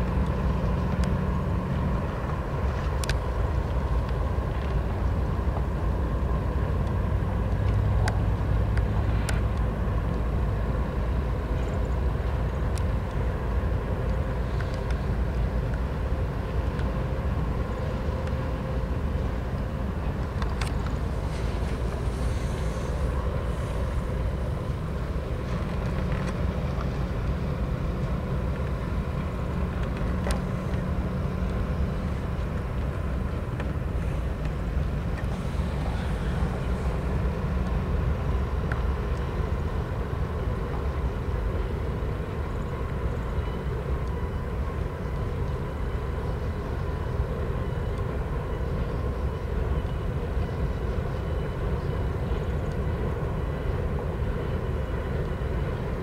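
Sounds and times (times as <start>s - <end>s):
diesel locomotive engine drone: 0.0s - 56.0s
freight cars rumbling over bridge: 0.0s - 56.0s
faint clicks: 14.0s - 15.8s.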